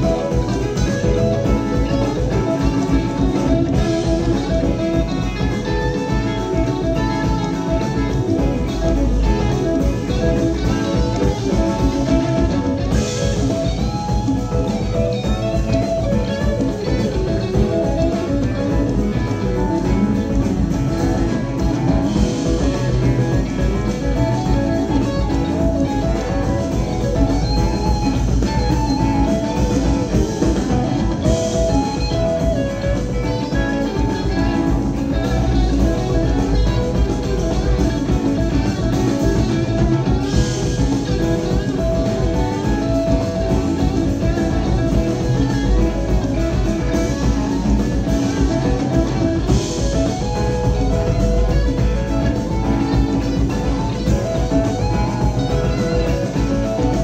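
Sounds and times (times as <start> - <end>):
electric guitar single-note lines: 0.0 - 57.0
live band playing: 0.0 - 57.0.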